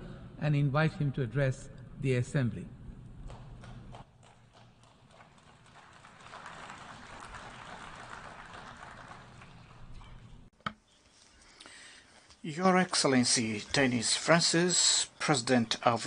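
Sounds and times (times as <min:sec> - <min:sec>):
faint applause in a hall: 0:03.2 - 0:10.5.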